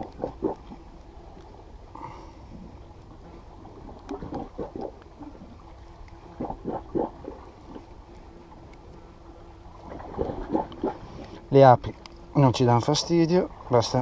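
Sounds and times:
sea water splashing against rocks: 0.0s - 0.9s, 2.7s - 7.9s, 9.8s - 11.4s
low steady rumble: 0.0s - 14.0s.

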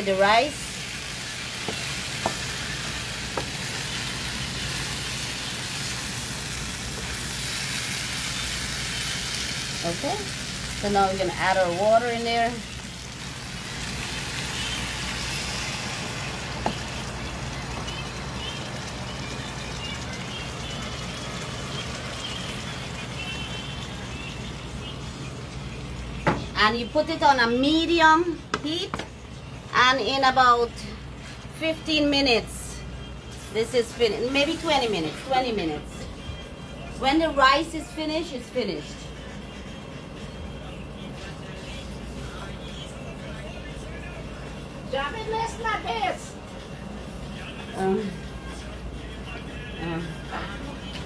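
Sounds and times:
food sizzling in oil: 0.0s - 25.2s, 33.3s - 35.4s.

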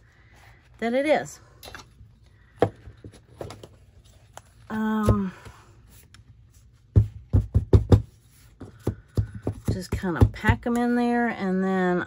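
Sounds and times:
paper handling: 2.4s - 4.7s
knocks on a tabletop: 7.0s - 8.1s.

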